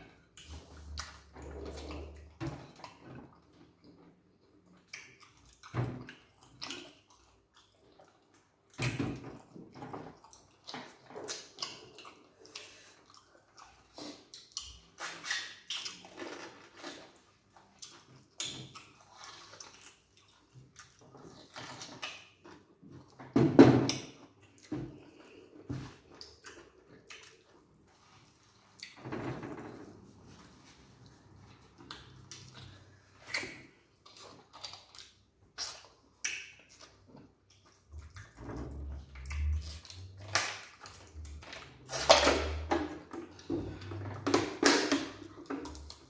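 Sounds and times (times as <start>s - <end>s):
wet chewing: 2.8s - 8.8s, 10.1s - 23.2s, 31.0s - 38.4s, 39.2s - 42.3s
lip smacking: 10.2s - 16.2s, 24.4s - 27.8s, 31.7s - 38.4s, 39.2s - 42.4s.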